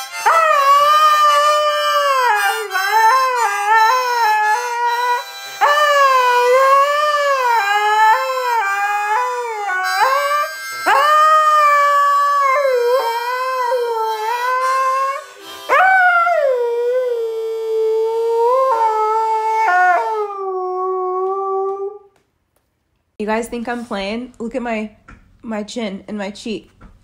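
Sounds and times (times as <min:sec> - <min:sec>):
dog howling: 0:00.2 - 0:22.1.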